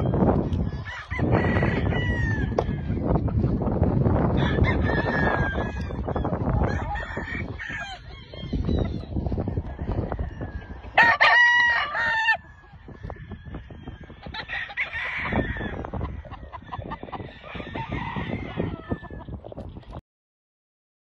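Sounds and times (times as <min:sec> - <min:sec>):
outdoor noise: 0:00.0 - 0:20.0
rooster crowing: 0:00.8 - 0:03.0, 0:04.4 - 0:08.9, 0:09.7 - 0:16.2, 0:17.2 - 0:19.2.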